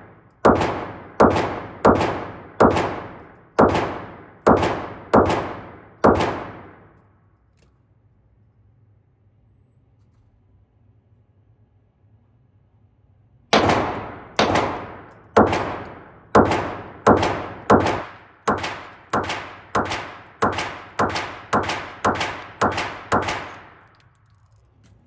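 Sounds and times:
pistol shots echoing: 0.0s - 7.0s, 13.5s - 24.0s.

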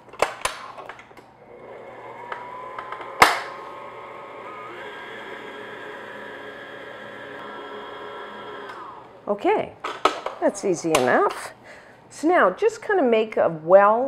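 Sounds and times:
stand mixer motor hum: 1.4s - 9.2s.

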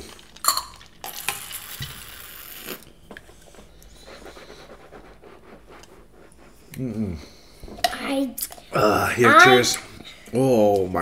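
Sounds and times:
drink slurped through a straw: 0.0s - 2.9s.

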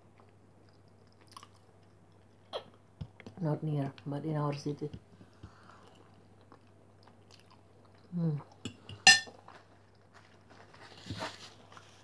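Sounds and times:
chewing: 0.0s - 3.3s, 5.4s - 10.4s
fork clinking on ceramic plate: 8.7s - 9.3s.

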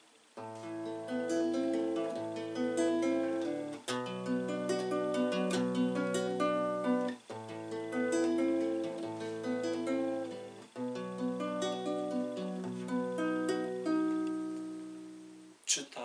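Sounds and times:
fingerstyle classical guitar: 0.4s - 15.6s.

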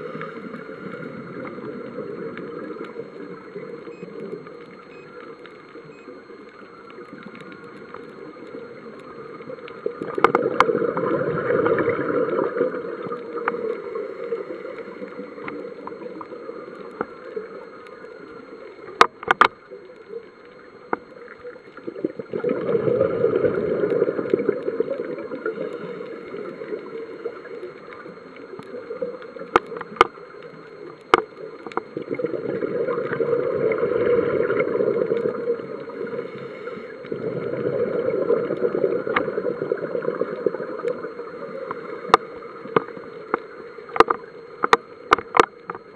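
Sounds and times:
underwater bubbles rushing: 0.0s - 45.9s.

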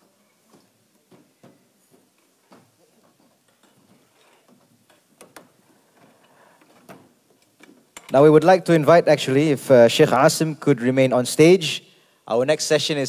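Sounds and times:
chairs knocking and clicking: 0.0s - 8.2s.

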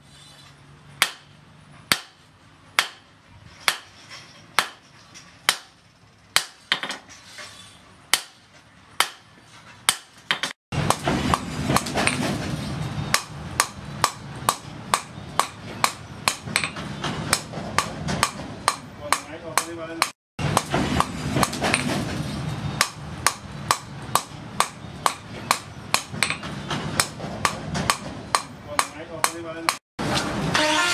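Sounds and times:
hammer striking hot steel on anvil: 1.0s - 1.3s, 2.8s - 4.0s, 4.6s - 4.8s, 5.5s - 5.8s, 13.1s - 21.9s, 22.8s - 29.8s.

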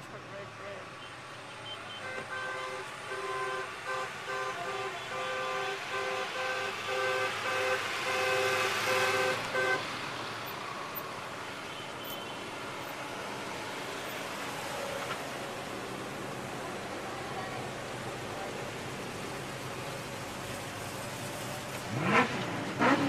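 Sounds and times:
car horn short toots: 1.0s - 9.8s
cars driving past: 5.2s - 23.0s.

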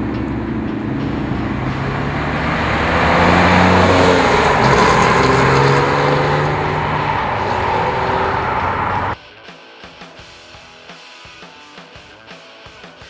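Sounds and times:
car accelerating past: 0.0s - 9.2s.

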